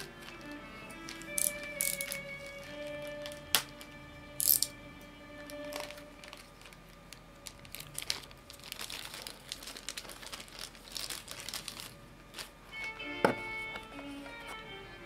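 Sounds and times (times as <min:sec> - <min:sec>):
plastic wrapping crinkling: 0:00.0 - 0:04.0, 0:05.4 - 0:13.0
background music: 0:00.0 - 0:06.5, 0:12.7 - 0:15.0.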